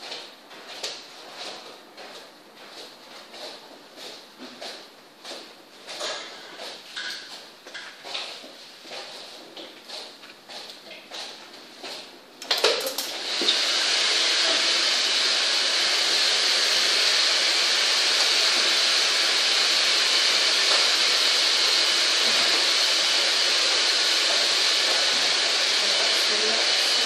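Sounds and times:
hair dryer blowing: 12.4 - 27.0.

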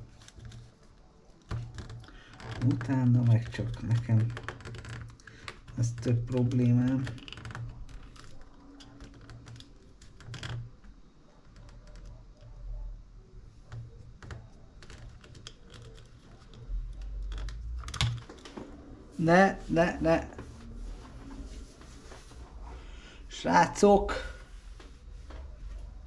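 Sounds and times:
small parts clicking and tapping: 1.4 - 12.6, 13.6 - 18.6.

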